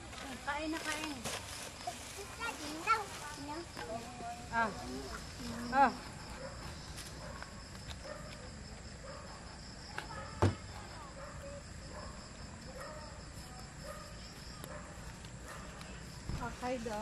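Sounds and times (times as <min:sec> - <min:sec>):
crickets and insects trilling: 0:00.0 - 0:17.0
faint distant voices: 0:00.0 - 0:17.0.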